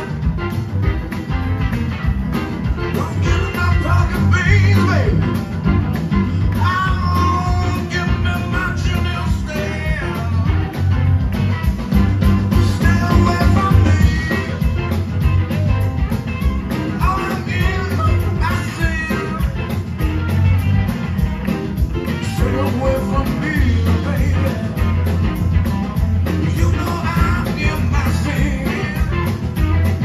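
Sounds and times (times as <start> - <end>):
bass: 0.0 - 30.0
drums: 0.0 - 30.0
electric guitars: 0.0 - 30.0
man singing: 2.9 - 5.4, 6.4 - 10.8, 12.5 - 15.0, 16.9 - 19.7, 22.2 - 25.2, 26.3 - 29.5.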